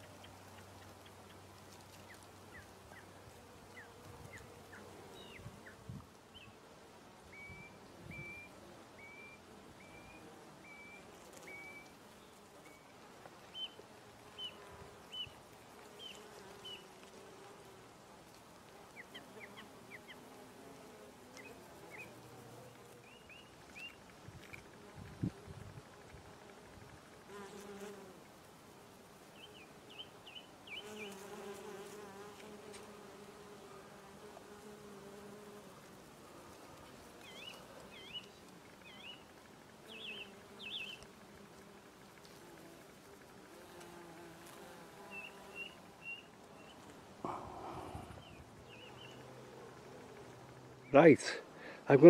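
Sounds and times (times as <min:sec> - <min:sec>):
bees buzzing: 0:24.7 - 0:52.0.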